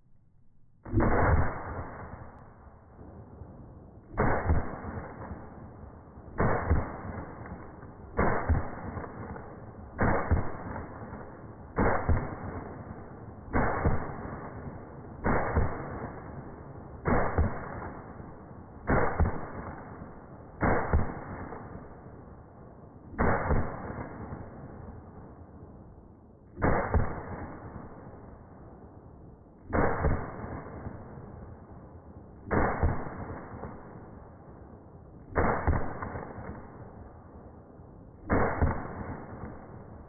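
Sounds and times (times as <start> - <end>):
shotgun shots: 0.8 - 2.6, 4.1 - 22.0, 23.1 - 24.8, 26.6 - 28.0, 29.7 - 31.2, 32.4 - 34.2, 35.3 - 37.0, 38.2 - 40.0.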